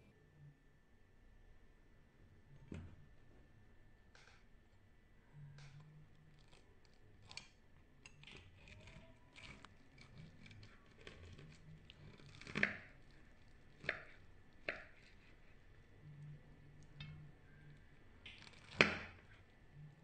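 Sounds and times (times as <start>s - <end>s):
crunching fried crust: 5.6s - 20.0s.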